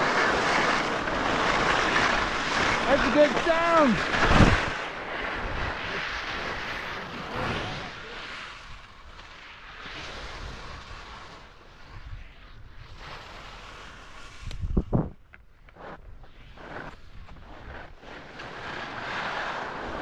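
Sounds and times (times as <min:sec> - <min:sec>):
skis scraping over snow: 0:00.0 - 0:20.0
wind on microphone: 0:03.5 - 0:08.2, 0:14.2 - 0:15.3.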